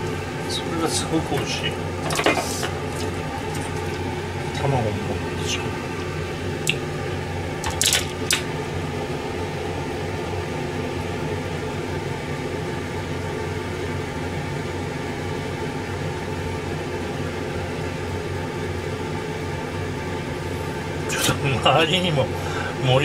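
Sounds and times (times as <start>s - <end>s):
kitchen appliance humming: 0.0s - 12.0s, 20.2s - 23.0s.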